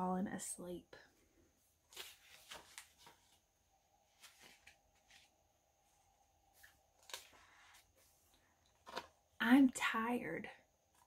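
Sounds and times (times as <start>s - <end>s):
paper pages rustling: 1.8s - 9.2s.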